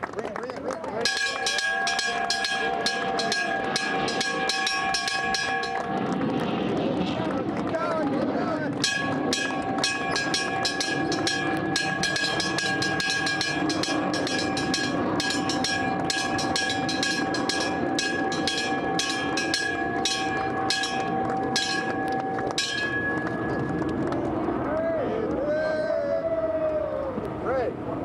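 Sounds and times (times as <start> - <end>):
applause: 0.0 - 1.2, 5.8 - 9.9, 21.2 - 25.4
bell ringing rapidly: 1.0 - 6.4, 8.8 - 24.1.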